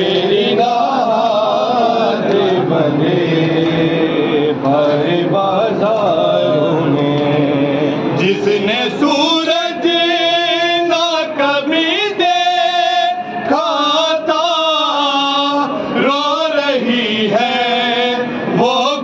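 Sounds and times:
men chanting in unison: 0:00.0 - 0:19.0.

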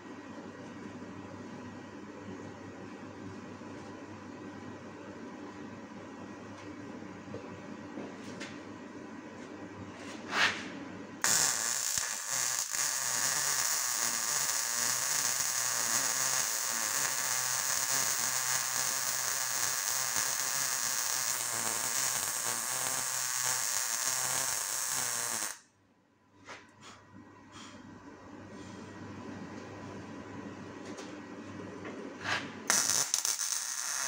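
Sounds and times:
welding arc crackling: 0:11.2 - 0:25.6, 0:32.7 - 0:34.0.

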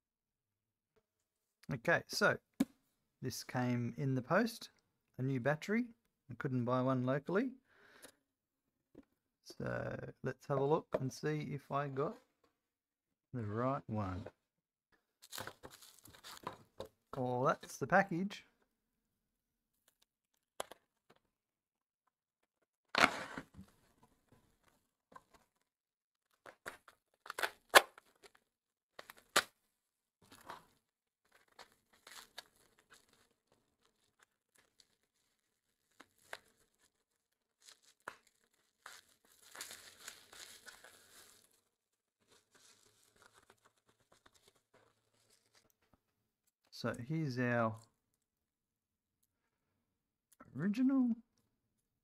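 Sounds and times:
bubble wrap crackling and tearing: 0:15.2 - 0:16.5, 0:26.3 - 0:29.6, 0:30.3 - 0:45.6
bubble wrap crinkling: 0:15.2 - 0:16.5, 0:30.3 - 0:45.7.

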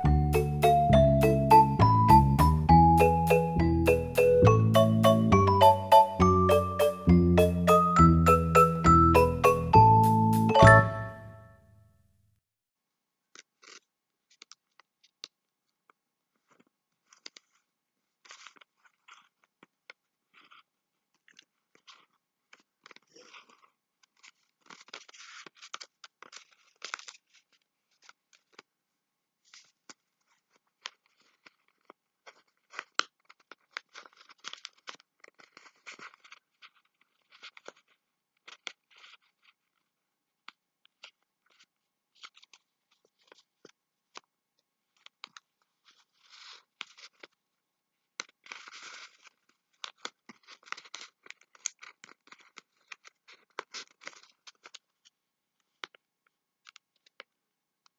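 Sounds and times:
paper rustling and crinkling: 0:16.3 - 0:28.7, 0:29.4 - 0:40.0, 0:40.8 - 0:44.3, 0:44.9 - 0:47.4, 0:48.2 - 0:56.0
paper fold clicks: 0:16.4 - 0:28.7.

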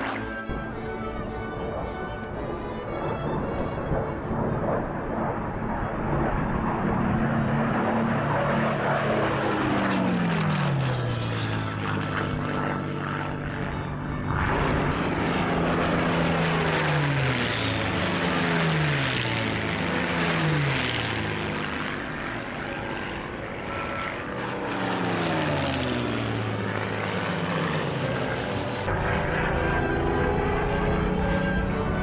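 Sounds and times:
propeller plane engine passing: 0:00.0 - 0:32.0.

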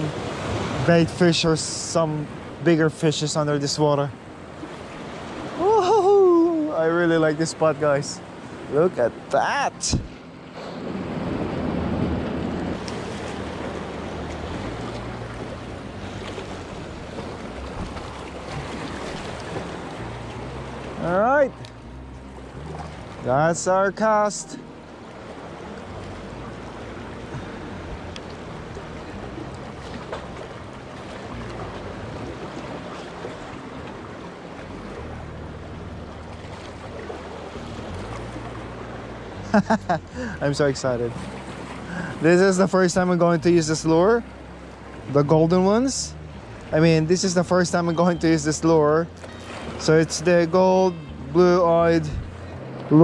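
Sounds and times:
waves splashing on rocks: 0:00.0 - 0:21.5
low steady hum: 0:00.0 - 0:53.0
wind rumbling on microphone: 0:09.8 - 0:21.0, 0:51.9 - 0:53.0
wind on microphone: 0:52.0 - 0:52.4.

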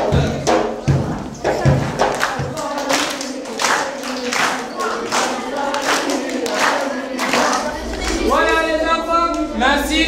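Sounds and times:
group singing: 0:00.0 - 0:10.0
hands clapping on a beat: 0:01.5 - 0:08.2.

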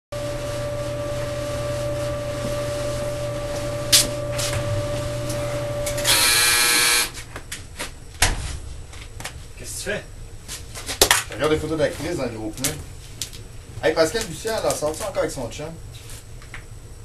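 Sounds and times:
clothes dryer humming: 0:00.1 - 0:10.6
dryer end-of-cycle buzzer: 0:00.2 - 0:07.2.

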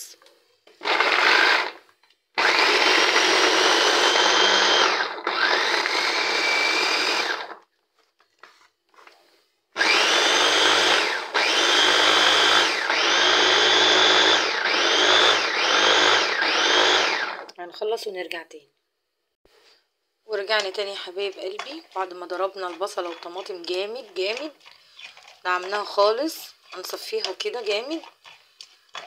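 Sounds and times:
food chopper motor whirring: 0:00.8 - 0:07.7, 0:09.8 - 0:17.6.

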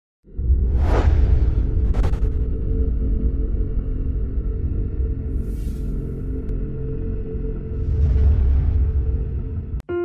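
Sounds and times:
deep rumble: 0:00.3 - 0:09.8
whoosh: 0:00.5 - 0:02.6.

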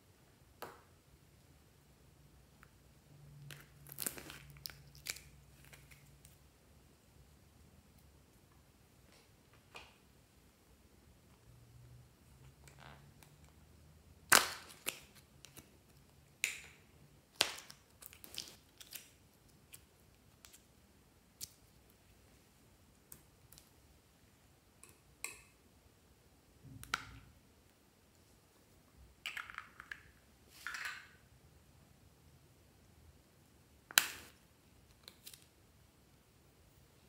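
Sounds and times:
plastic capsules clicking and snapping: 0:29.2 - 0:31.2.

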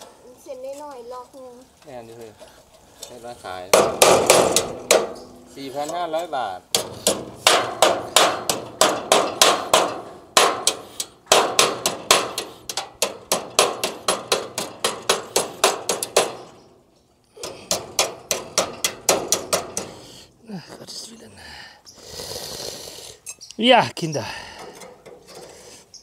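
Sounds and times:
hammer blows on metal: 0:06.7 - 0:16.7.

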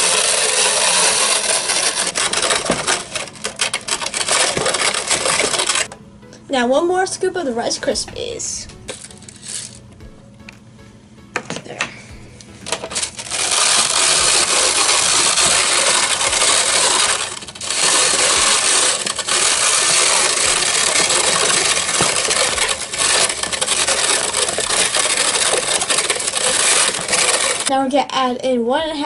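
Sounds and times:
hand-cranked plastic grinder grinding: 0:00.0 - 0:05.9, 0:08.9 - 0:09.8, 0:12.4 - 0:27.7.

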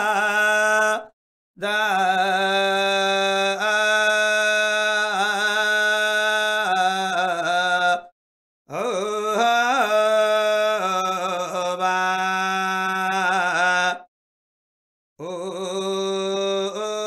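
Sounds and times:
person chanting in long held notes: 0:01.6 - 0:08.1, 0:15.2 - 0:17.0.

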